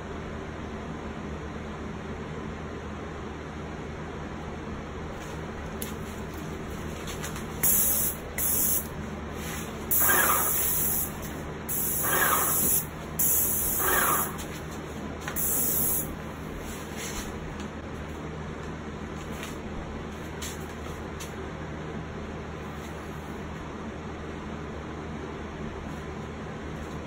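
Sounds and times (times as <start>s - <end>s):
steady background hum: 0.0s - 27.0s
spray gun hissing: 7.6s - 8.9s, 9.5s - 14.5s, 15.4s - 16.1s.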